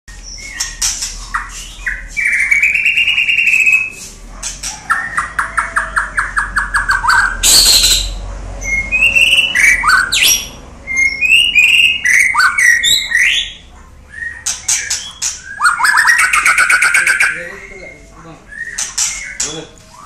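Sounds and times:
bird singing varied whistles: 6.6s - 20.0s.

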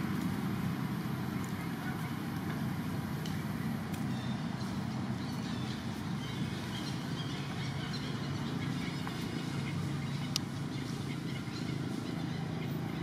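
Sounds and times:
engine humming: 0.0s - 13.0s.

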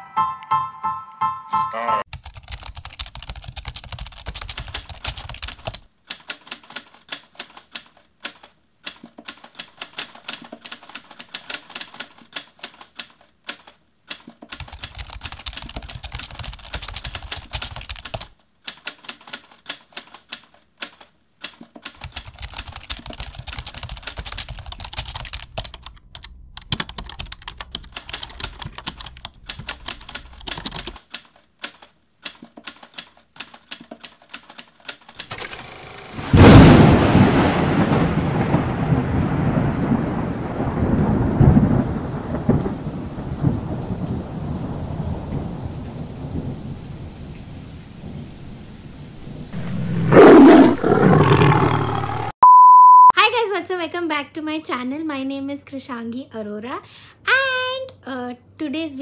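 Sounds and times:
fast keyboard typing: 2.1s - 36.4s.

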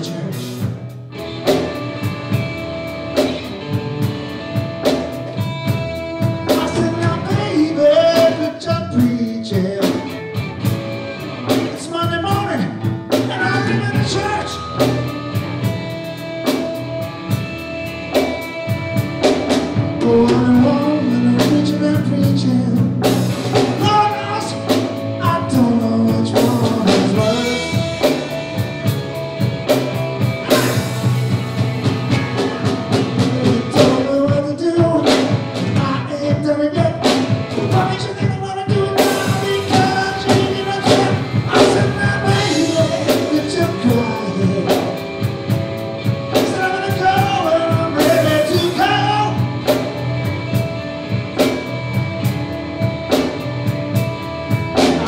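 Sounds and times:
drum kit steady beat: 0.0s - 55.0s
electric bass: 0.0s - 55.0s
electric guitar: 0.0s - 55.0s.

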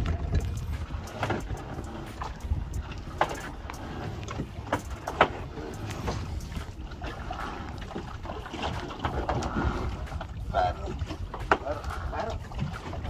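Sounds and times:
water around a boat: 0.0s - 13.0s
wind: 0.0s - 13.0s.

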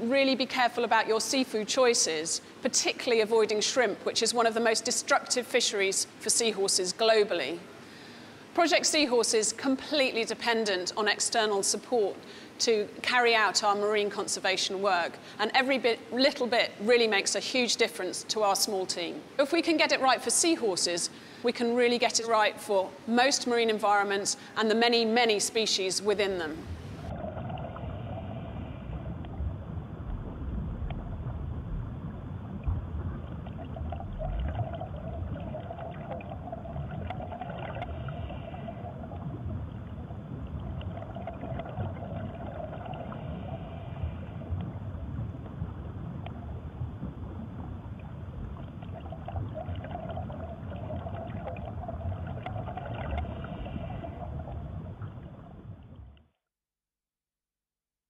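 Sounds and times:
wavering mid-pitched hum: 26.1s - 56.2s
low rumble: 26.6s - 56.2s.

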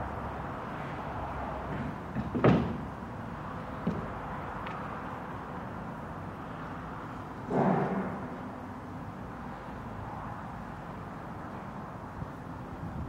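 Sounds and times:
outdoor background noise: 0.0s - 13.0s
sharp knock: 7.5s - 8.3s.

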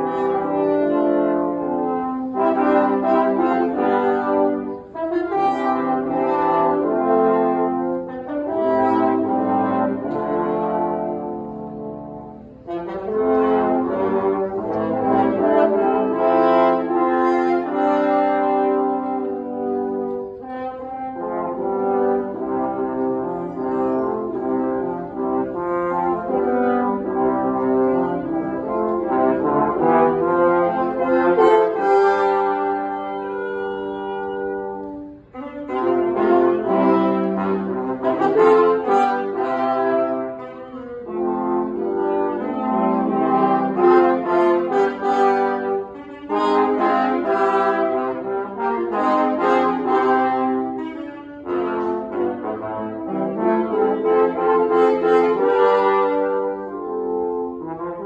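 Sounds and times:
brass and saxophone chords: 0.0s - 58.0s.

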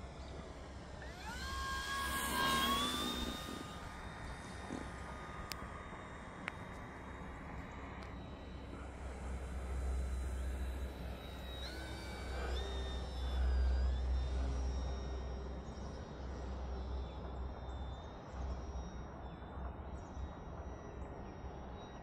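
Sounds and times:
model plane motor whining: 0.0s - 17.2s.

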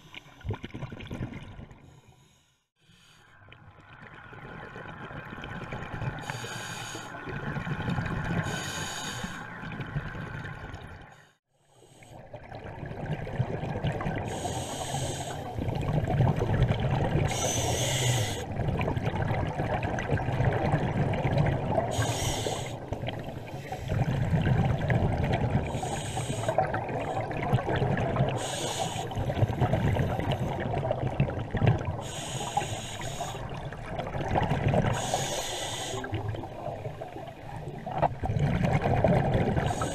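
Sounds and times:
exhaled bubbles rumbling: 0.4s - 1.8s, 3.5s - 6.4s, 7.1s - 11.2s, 12.2s - 14.7s, 15.4s - 32.2s, 33.2s - 35.2s, 36.0s - 39.9s
regulator inhale hiss: 1.9s - 3.4s, 6.2s - 7.2s, 8.4s - 9.5s, 14.3s - 15.6s, 17.3s - 18.4s, 21.9s - 22.8s, 25.7s - 27.3s, 28.4s - 30.6s, 32.0s - 33.5s, 34.9s - 36.2s, 39.6s - 39.9s.

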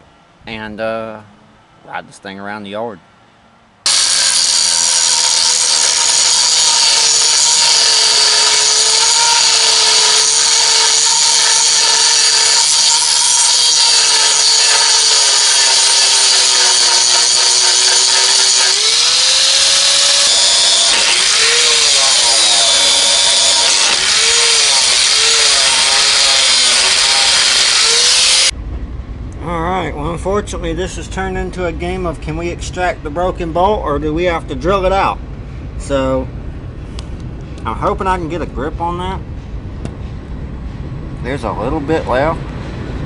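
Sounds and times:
angle grinder grinding metal: 3.9s - 28.5s.

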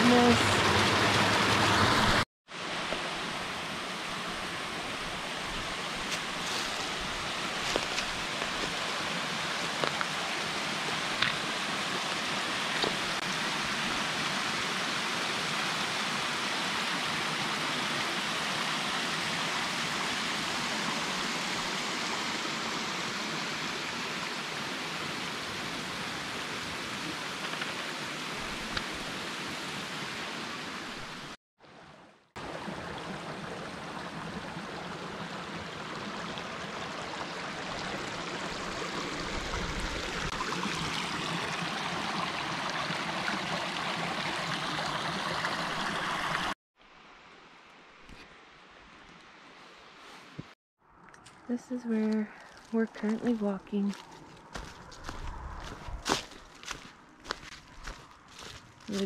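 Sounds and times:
waterfall rushing over rocks: 0.0s - 31.4s.

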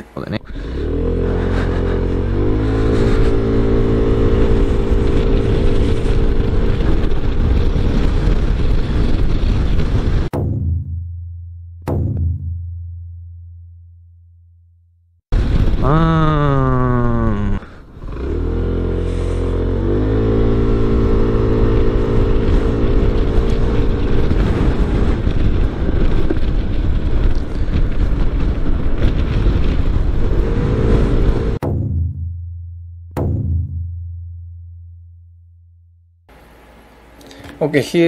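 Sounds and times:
low hum: 0.0s - 37.6s
scooter engine accelerating: 0.4s - 9.2s, 15.9s - 26.4s, 29.2s - 31.6s
wind noise: 0.4s - 10.3s, 15.3s - 31.6s
cinematic impact hit: 10.2s - 11.3s, 11.9s - 13.4s, 31.5s - 32.6s, 33.2s - 34.6s.

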